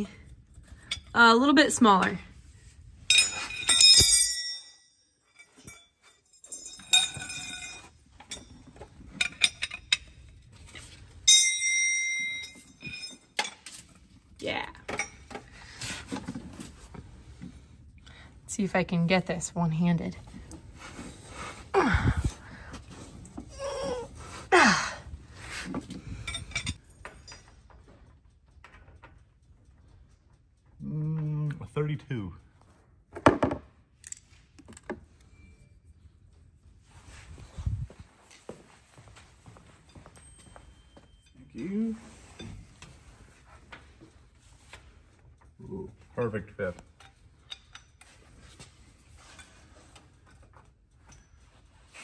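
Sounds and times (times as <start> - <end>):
metal tools clinking on concrete: 0.0 - 2.2, 3.0 - 16.9, 25.5 - 31.1, 37.9 - 52.0.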